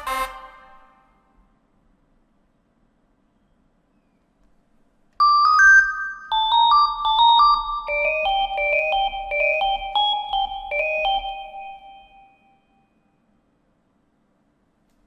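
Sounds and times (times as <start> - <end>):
sine synthesizer melody: 5.2 - 13.2.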